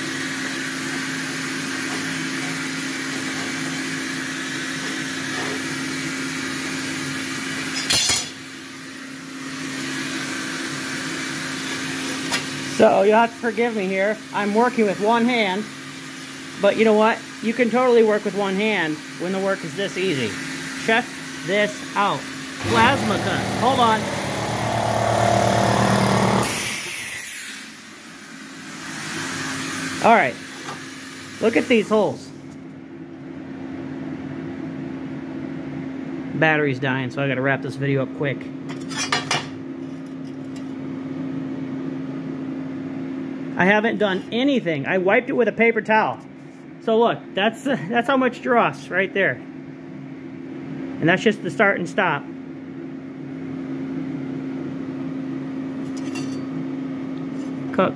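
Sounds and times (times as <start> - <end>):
machine hum with fan hiss: 0.0 - 57.9
air compressor motor hum: 9.1 - 28.9.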